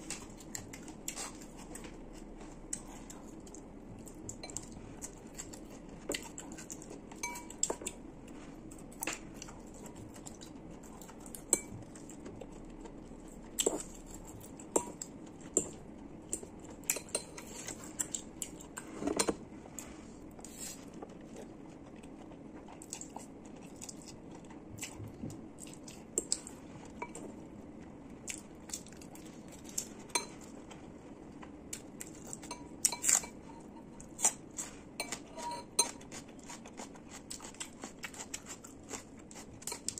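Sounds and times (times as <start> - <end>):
chewing: 0.0 - 39.9
steady low hum: 0.0 - 39.9
fork scraping ceramic bowl: 34.6 - 36.2.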